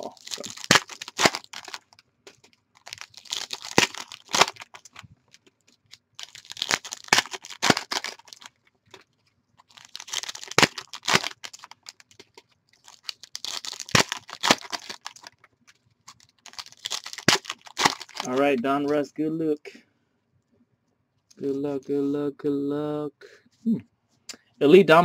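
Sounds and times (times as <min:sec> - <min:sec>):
foil wrappers tearing and crinkling: 0:00.0 - 0:18.5.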